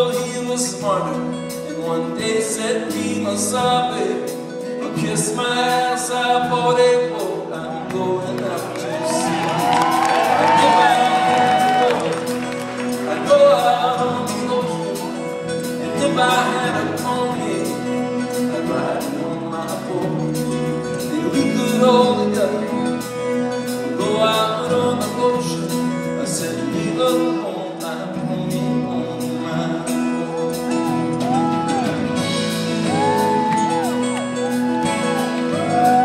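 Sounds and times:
live country folk band: 0.0s - 36.0s.

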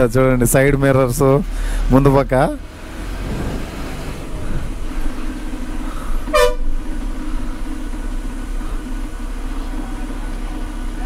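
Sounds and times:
bus engine running: 0.0s - 11.0s
vehicle horn toot: 6.2s - 6.8s.

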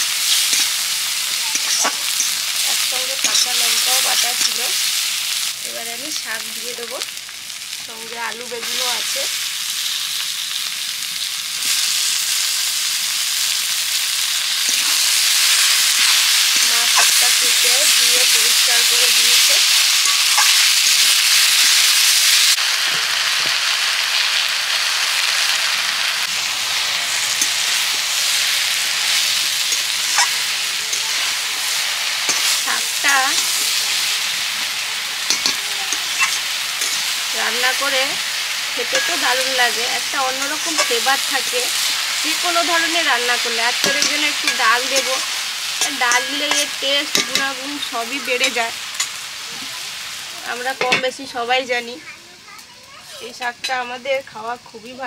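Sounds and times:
vegetables sizzling in hot oil: 0.0s - 55.0s
spatula scraping a pan: 0.2s - 4.6s, 29.0s - 31.3s, 35.2s - 37.2s, 38.9s - 39.5s.

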